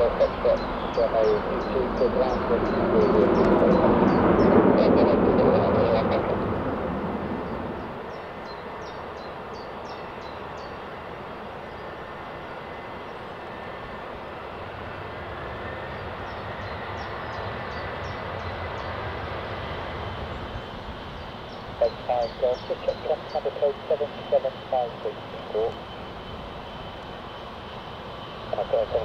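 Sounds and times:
jet engines rushing: 0.0s - 29.0s.

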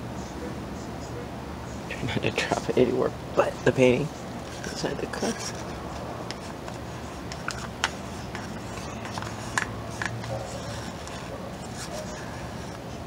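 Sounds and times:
steady low hum: 0.0s - 13.0s
light rubbing: 4.4s - 13.0s
plastic cup clicking: 6.2s - 10.4s.

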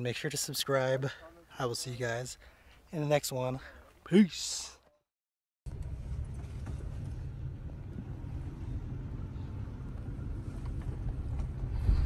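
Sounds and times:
vehicle engine rumbling: 5.7s - 12.0s.

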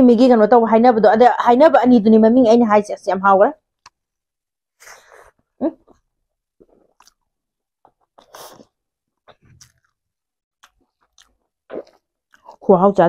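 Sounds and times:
chewing: 6.6s - 7.2s, 9.3s - 10.0s, 10.6s - 12.6s.

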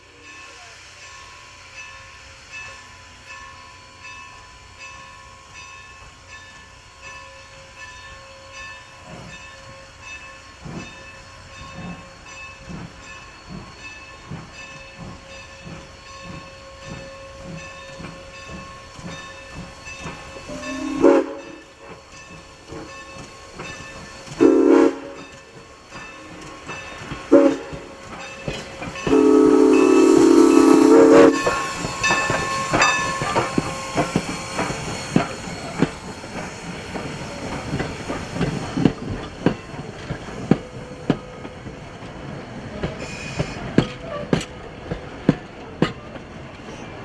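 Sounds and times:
steam locomotive chuffing: 0.0s - 47.0s
steam whistle blasts: 20.5s - 21.7s, 24.4s - 25.3s, 27.3s - 27.9s, 29.0s - 32.0s, 43.0s - 44.3s.

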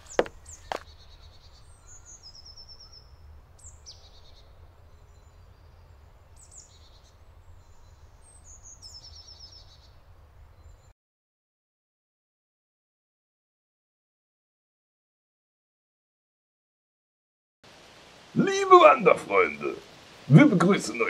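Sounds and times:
birds singing high trills: 0.0s - 10.9s.

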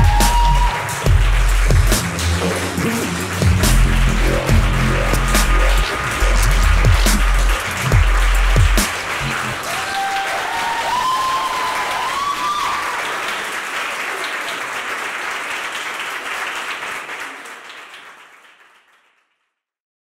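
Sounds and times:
person cheering: 0.0s - 1.1s, 2.6s - 13.2s
audience applauding: 0.0s - 19.4s.

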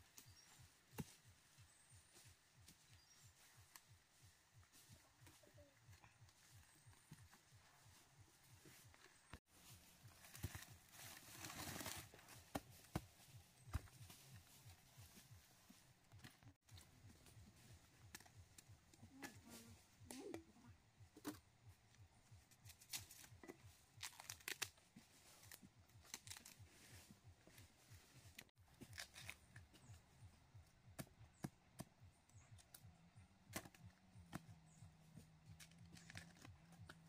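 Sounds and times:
faint crackling and tearing: 22.7s - 26.9s, 28.3s - 29.6s, 35.5s - 37.0s.

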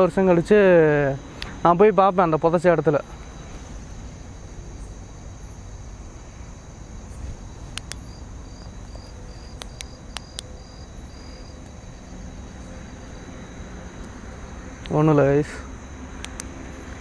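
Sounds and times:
crickets chirping: 0.0s - 17.0s
low background rumble: 0.0s - 17.0s
sharp clicks: 1.4s - 1.6s, 7.7s - 8.1s, 9.0s - 10.5s, 16.2s - 16.6s.

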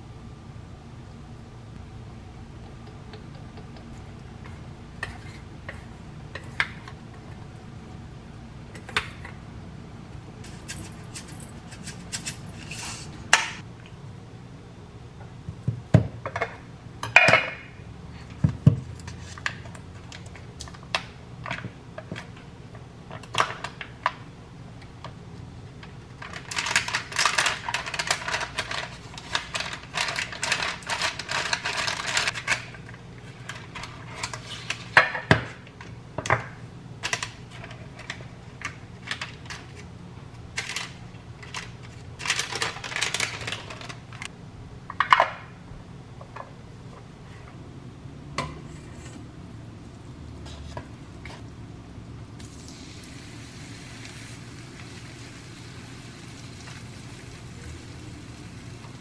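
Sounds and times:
low steady hum: 0.0s - 59.0s
paper wrapper crinkling: 42.2s - 44.0s.

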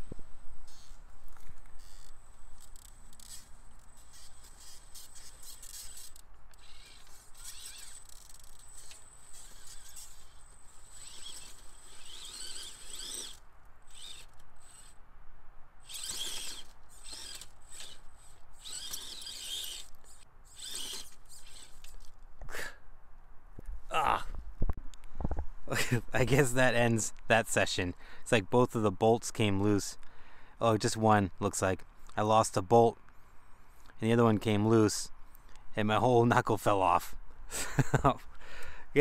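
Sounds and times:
electric toy car motor whining: 0.6s - 15.0s, 15.8s - 22.2s.

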